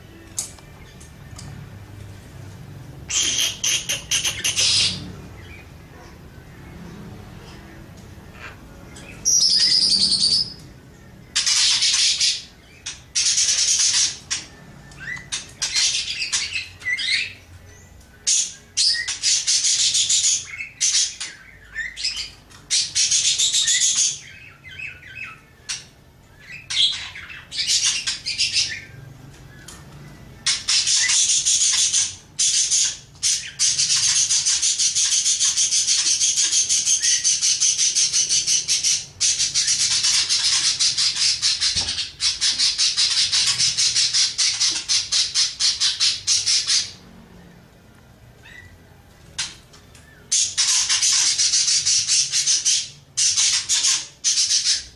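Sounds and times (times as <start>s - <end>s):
budgerigar warbling: 3.1s - 5.0s.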